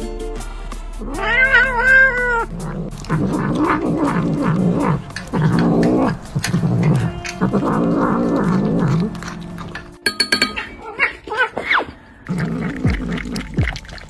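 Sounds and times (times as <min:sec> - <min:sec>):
cat meowing: 0:01.1 - 0:02.5
cat growling while eating: 0:01.1 - 0:10.0, 0:12.3 - 0:13.6.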